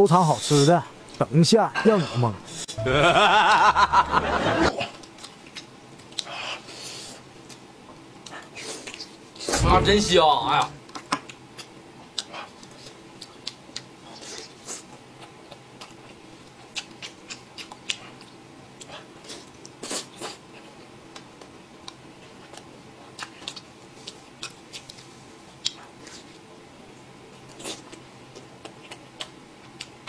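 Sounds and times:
chewing and smacking: 0:05.0 - 0:09.5, 0:10.8 - 0:30.0.

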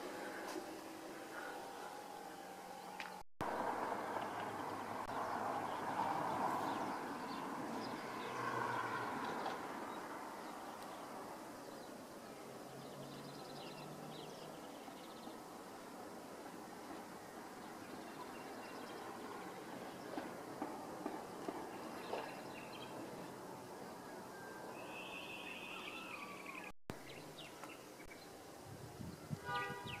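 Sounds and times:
bird chirps: 0:24.3 - 0:28.3.

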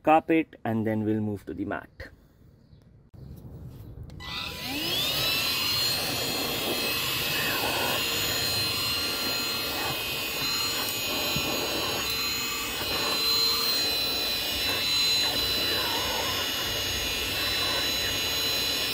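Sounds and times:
handheld vacuum motor whine: 0:04.1 - 0:18.9.

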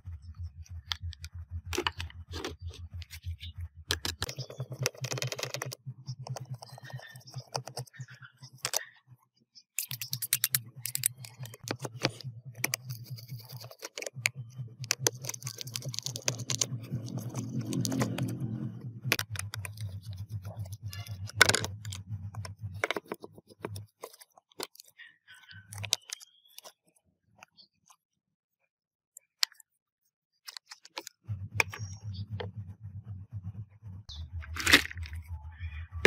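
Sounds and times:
low motor hum: 0:00.0 - 0:08.9, 0:09.9 - 0:24.2, 0:31.0 - 0:36.0
plastic laptop parts clicking: 0:00.8 - 0:03.2, 0:03.9 - 0:07.9, 0:09.8 - 0:18.4.

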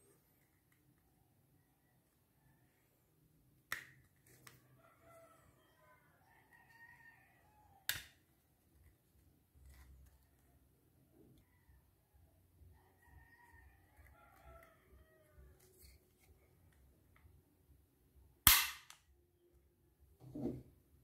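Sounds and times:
pistol parts clicking: 0:18.5 - 0:19.0.

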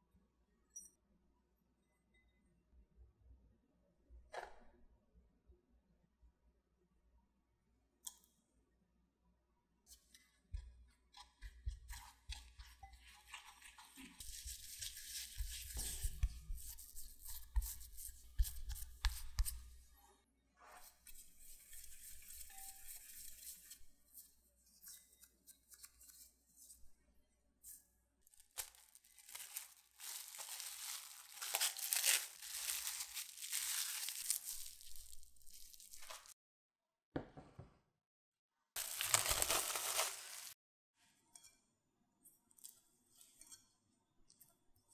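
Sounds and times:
hands kneading dough: 0:10.3 - 0:20.0, 0:27.6 - 0:36.4, 0:38.8 - 0:40.6
spatula scraping glass bowl: 0:11.1 - 0:17.5, 0:20.8 - 0:23.7
cling wrap crinkling: 0:28.3 - 0:36.4, 0:38.8 - 0:40.6.

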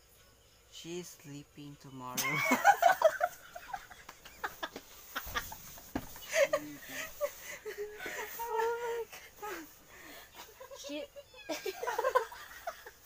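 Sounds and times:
young people laughing: 0:02.2 - 0:09.7, 0:10.3 - 0:13.0
squealing laugh: 0:10.4 - 0:13.0.

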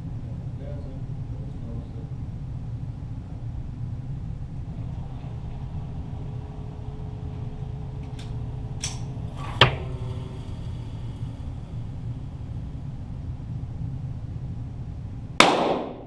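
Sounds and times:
steady low rumble: 0:00.0 - 0:16.0
pistol shot cracks: 0:15.4 - 0:16.0.

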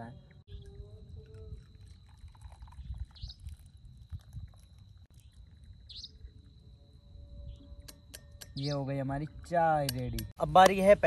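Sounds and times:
tea trickling into cup: 0:00.5 - 0:06.4.

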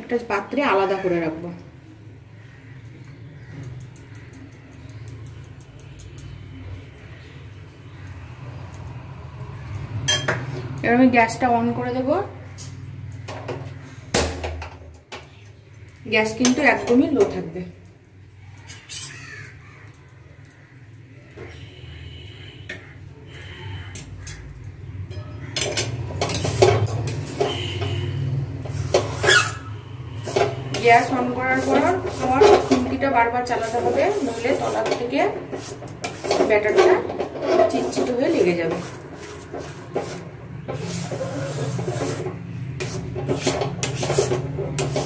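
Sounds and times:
metal spoon scraping a pan: 0:18.6 - 0:19.6, 0:21.4 - 0:45.0.

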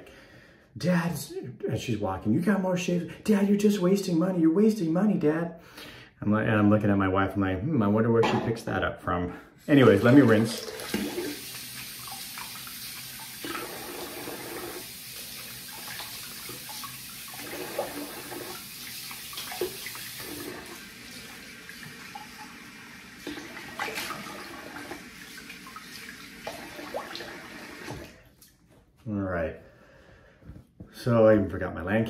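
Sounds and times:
tap water running into sink: 0:09.8 - 0:28.2
water splashing: 0:09.8 - 0:28.5.

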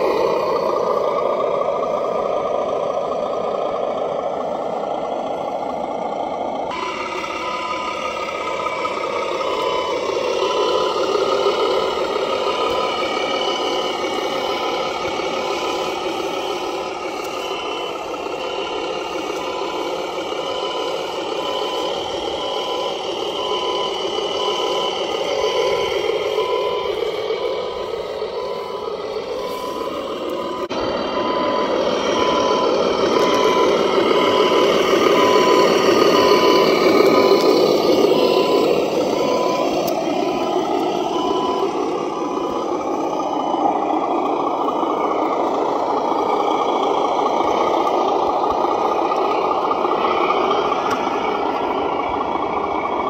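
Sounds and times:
diesel engine through small speaker: 0:00.0 - 0:53.0
short high beeps: 0:06.7 - 0:43.8.

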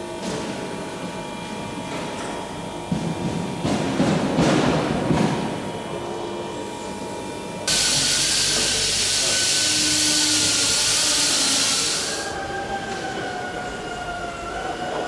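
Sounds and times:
low workshop hum: 0:05.3 - 0:13.9
compressed air hissing: 0:07.7 - 0:12.4.

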